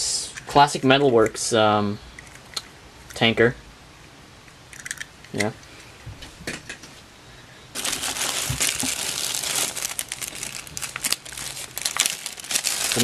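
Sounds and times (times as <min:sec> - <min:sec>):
plastic bag crinkling: 0:07.8 - 0:13.0.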